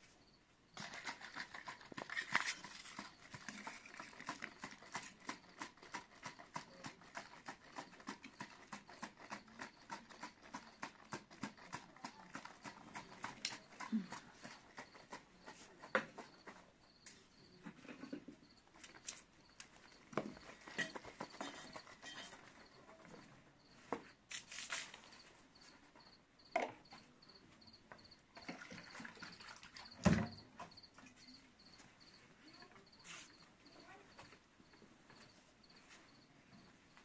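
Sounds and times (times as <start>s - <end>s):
cricket chirping: 0.0s - 37.0s
knocks and clatter of handling: 17.5s - 23.3s.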